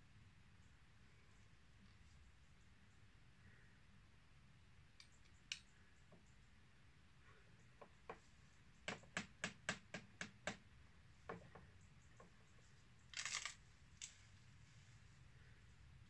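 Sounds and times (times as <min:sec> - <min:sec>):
sharp clicks: 0:05.0 - 0:05.8.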